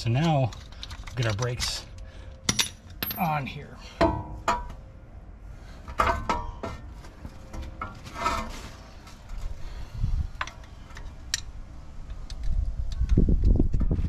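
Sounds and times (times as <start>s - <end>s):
metal clinks and rattles: 0.0s - 3.5s.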